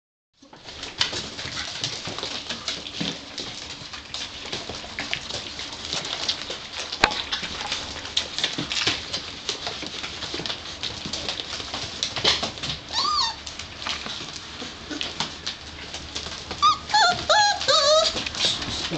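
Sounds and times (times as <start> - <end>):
claws scrabbling on tiled floor: 0.4 - 18.9
puppies squeaking and grunting: 12.4 - 18.9.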